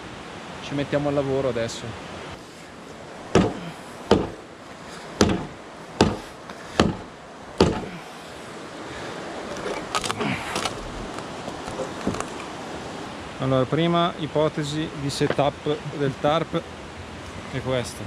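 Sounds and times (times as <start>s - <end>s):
knife chopping into sapling: 3.4s - 4.4s, 5.2s - 7.9s.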